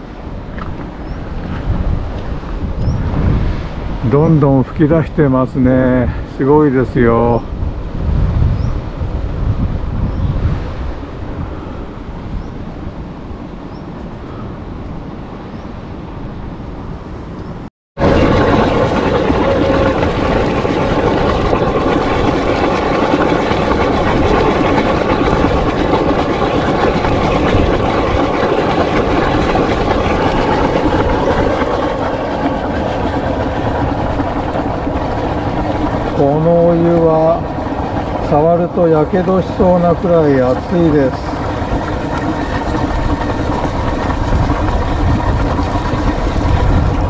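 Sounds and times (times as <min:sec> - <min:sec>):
steam hissing from vents: 0:18.1 - 0:47.0.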